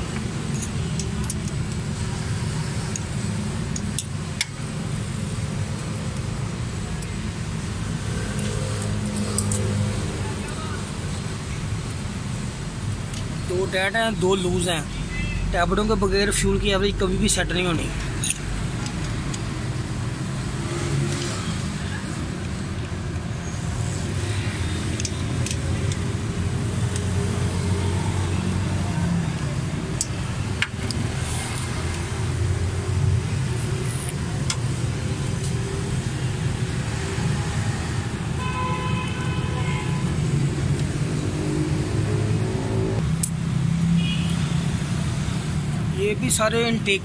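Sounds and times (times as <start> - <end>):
vehicle engines rumbling: 0.0 - 47.0
wrench clicking on metal: 0.2 - 1.9, 18.0 - 19.6, 24.8 - 26.1.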